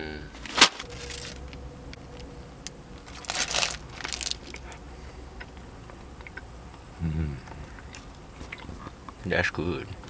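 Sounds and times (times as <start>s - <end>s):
paper wrapper crinkling: 0.4s - 1.5s, 3.1s - 4.7s.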